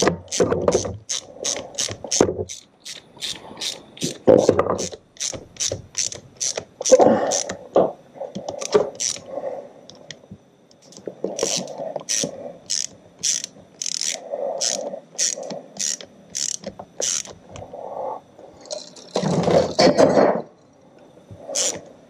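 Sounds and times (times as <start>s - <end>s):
socket ratchet clicking: 4.8s - 7.5s, 11.4s - 17.3s.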